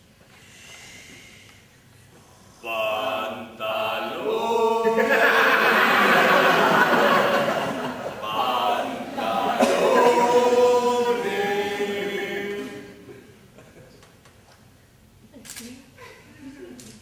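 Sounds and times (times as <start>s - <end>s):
group of voices chanting: 2.6s - 13.1s.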